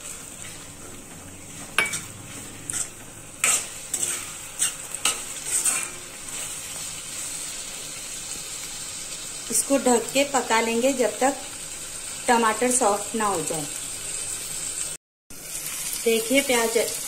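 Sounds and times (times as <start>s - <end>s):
metal spatula scraping a pan: 0.0s - 7.6s
vegetables sizzling in oil: 0.0s - 17.0s.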